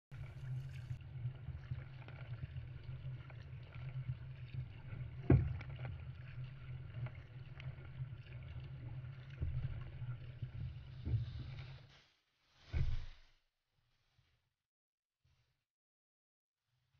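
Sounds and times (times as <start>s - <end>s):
water splashing along boat hull: 0.1s - 11.9s.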